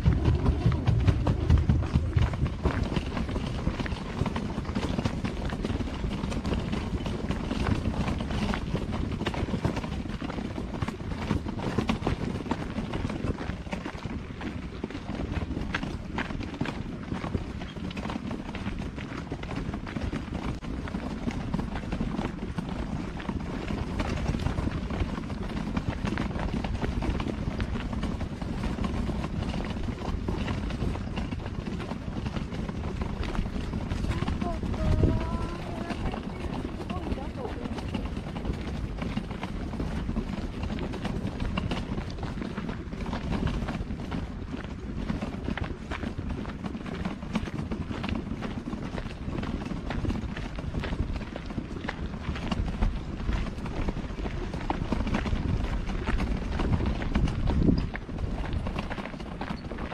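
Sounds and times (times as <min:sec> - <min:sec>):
low rumble: 0:00.0 - 0:05.6
steady low rumble: 0:00.0 - 0:07.0, 0:32.2 - 0:43.0
footsteps on gravel: 0:32.9 - 0:38.1.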